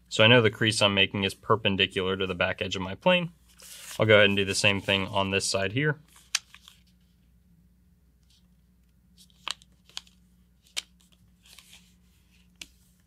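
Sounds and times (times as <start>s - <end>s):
paper rustling: 3.5s - 5.2s, 9.2s - 13.0s.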